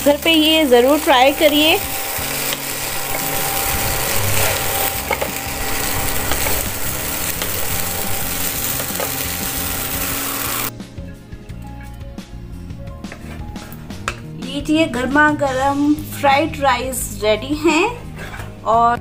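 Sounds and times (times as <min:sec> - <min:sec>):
fried rice sizzling in a pan: 0:00.0 - 0:10.7.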